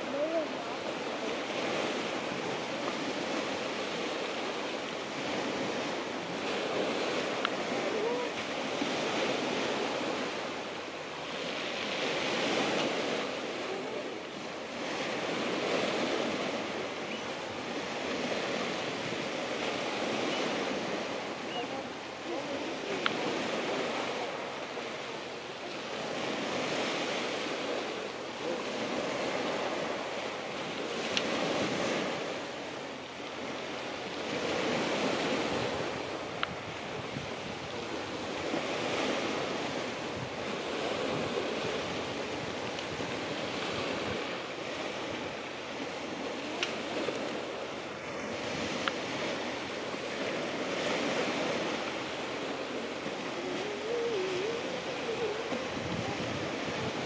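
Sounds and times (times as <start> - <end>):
sea waves breaking on shore: 0.0 - 57.0
wind buffeting microphone: 34.1 - 57.0.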